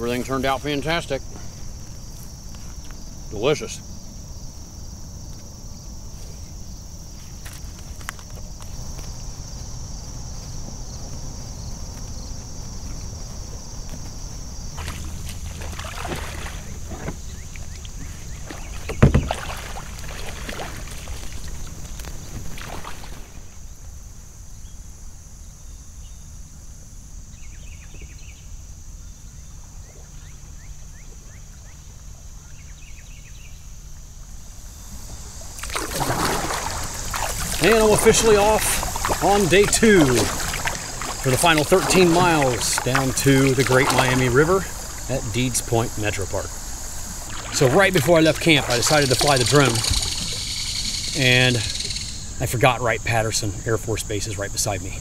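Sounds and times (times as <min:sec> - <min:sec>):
high insect drone: 0:00.0 - 0:55.0
kayak paddle strokes in water: 0:11.9 - 0:23.4, 0:34.9 - 0:51.9.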